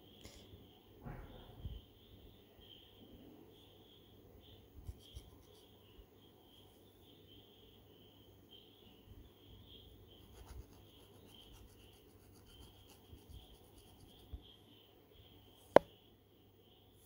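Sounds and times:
crickets chirping: 0.0 - 17.0
comb scratching through hair: 10.4 - 14.2.

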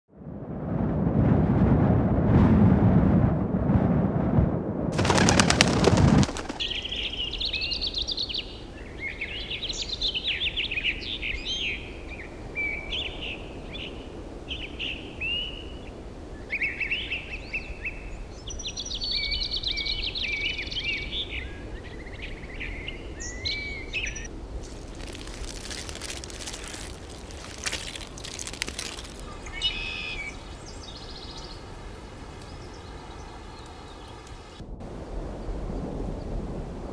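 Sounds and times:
birds chirping and whistling: 16.6 - 24.3, 27.6 - 31.6.

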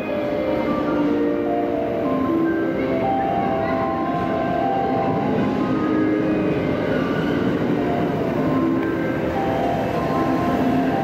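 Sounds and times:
chime-like melody: 0.0 - 11.0
electric train rumble: 0.0 - 11.0.

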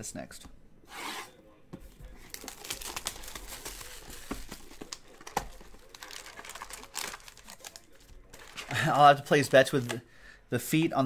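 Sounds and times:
plastic shrink-wrap crinkling: 2.3 - 10.0.

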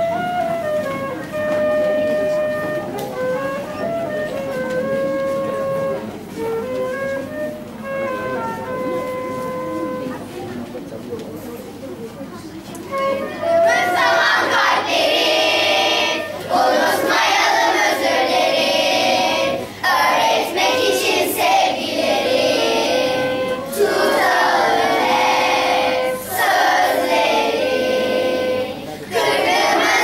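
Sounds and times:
music: 0.0 - 30.0
children singing: 13.6 - 30.0.

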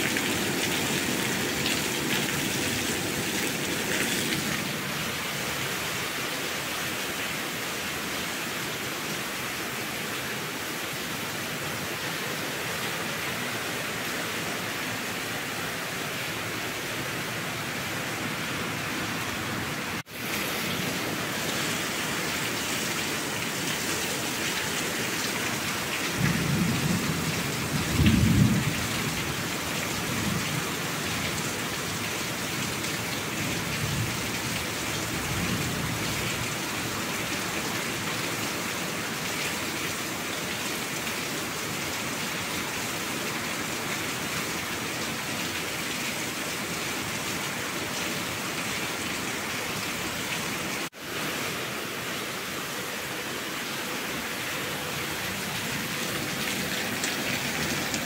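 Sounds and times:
steady rain: 0.0 - 58.0
low rumbles of thunder: 26.2 - 29.2.

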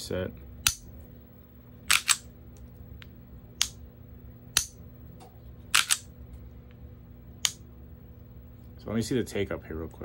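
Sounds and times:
pistol action clicks: 1.9 - 2.3.

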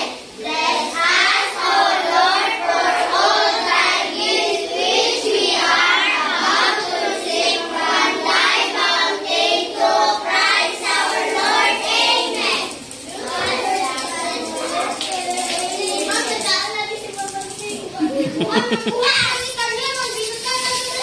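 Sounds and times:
children singing in unison: 0.0 - 16.1.

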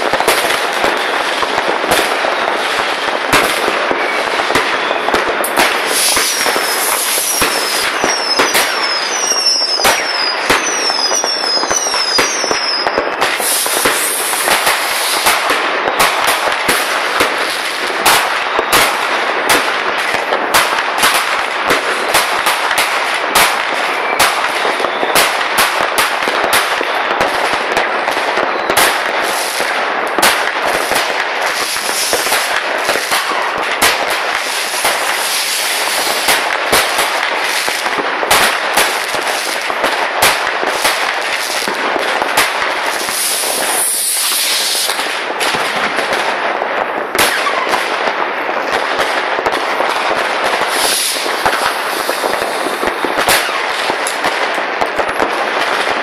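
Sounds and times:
fireworks popping and banging: 0.0 - 56.0
falling firework whistles: 2.2 - 16.5, 23.4 - 25.4, 30.7 - 38.0, 42.4 - 45.1, 47.2 - 47.8, 50.5 - 53.9.

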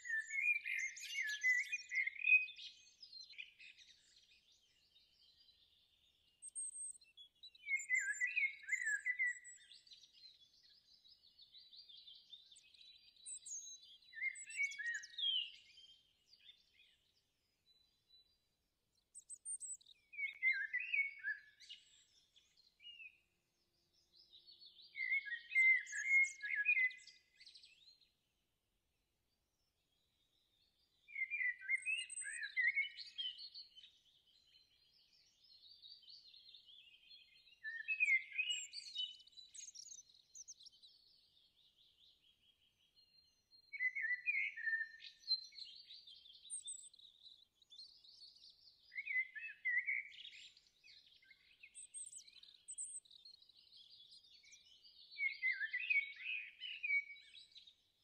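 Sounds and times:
birds chirping and singing: 0.0 - 28.2, 29.6 - 58.0.

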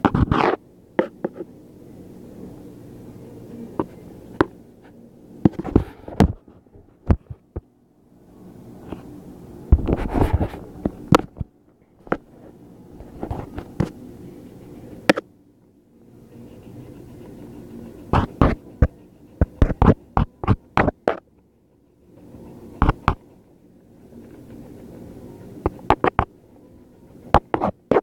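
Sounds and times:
rubbing on microphone: 0.0 - 1.5, 9.7 - 11.5, 12.1 - 14.0, 16.4 - 21.2, 24.1 - 26.3, 27.3 - 28.0
steady low hum: 0.0 - 28.0.

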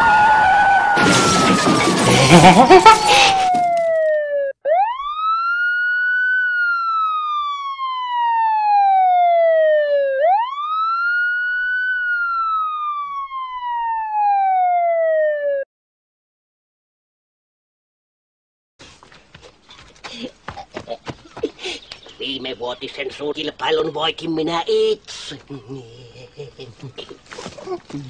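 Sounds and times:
police siren wailing: 0.0 - 15.7.

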